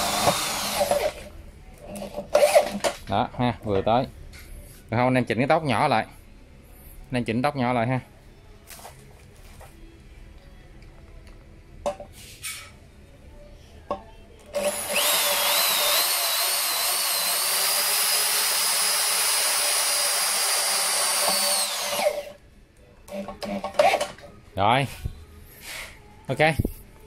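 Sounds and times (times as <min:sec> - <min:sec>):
electric drill drilling into steel: 0:00.0 - 0:01.2, 0:14.6 - 0:22.3.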